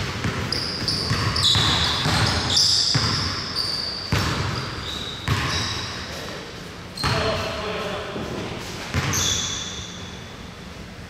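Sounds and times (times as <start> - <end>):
basketball bouncing: 0.0 - 6.0, 8.9 - 9.7
sneakers squeaking on gym floor: 0.0 - 10.4.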